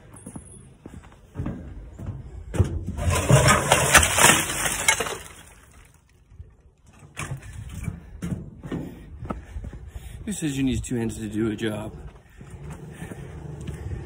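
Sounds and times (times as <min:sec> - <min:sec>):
debris dumped into a bin: 0:03.0 - 0:06.0.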